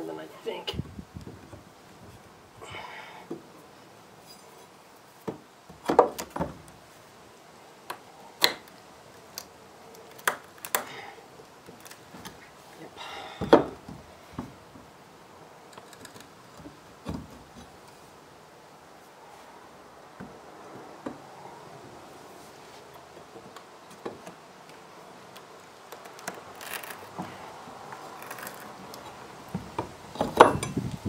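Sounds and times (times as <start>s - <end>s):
pry bar scraping: 15.7s - 18.0s, 25.3s - 30.9s.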